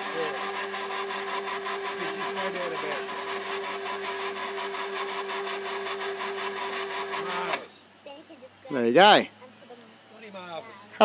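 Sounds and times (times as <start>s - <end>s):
electric hoist motor humming: 0.0s - 7.7s.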